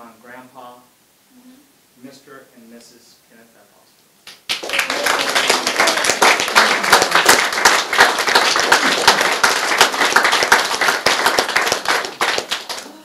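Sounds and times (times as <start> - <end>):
people clapping: 4.2 - 13.0.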